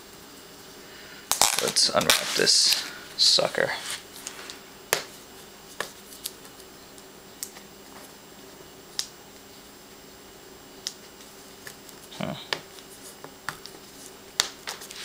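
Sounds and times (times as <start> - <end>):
faint steady hum: 0.0 - 15.0
tape clicks and crinkles: 1.3 - 2.9.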